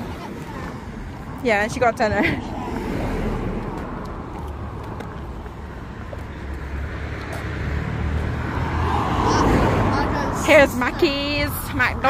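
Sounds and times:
rumble of passing cars: 0:00.0 - 0:12.0.

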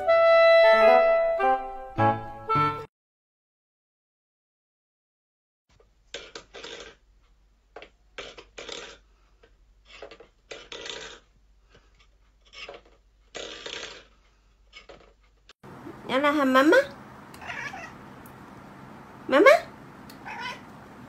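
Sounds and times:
metal bowl scraping on wood: 0:09.8 - 0:15.2.

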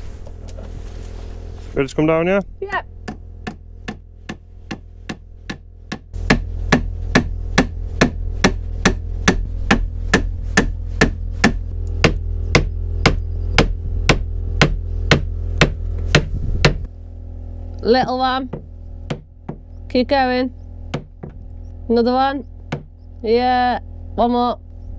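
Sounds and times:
low hum: 0:00.0 - 0:24.9
sharp evenly spaced knocks: 0:03.0 - 0:16.9, 0:18.5 - 0:19.7, 0:20.9 - 0:21.5, 0:22.6 - 0:23.0.

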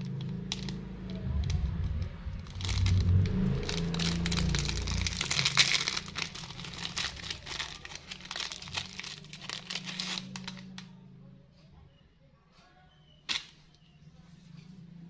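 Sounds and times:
plastic wrapper crinkling: 0:00.0 - 0:10.9.

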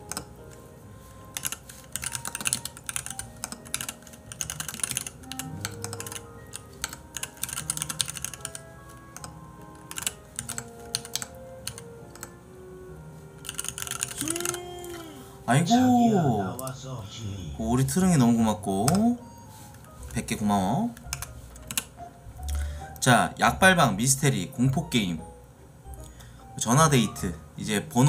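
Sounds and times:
soft background music: 0:00.0 - 0:28.0
keyboard key clicks: 0:01.3 - 0:12.4.

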